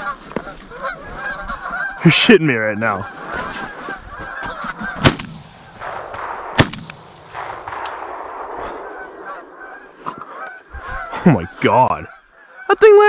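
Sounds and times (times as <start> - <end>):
geese honking: 0.0 - 6.5, 8.5 - 13.0
shotgun shots: 5.0 - 9.4.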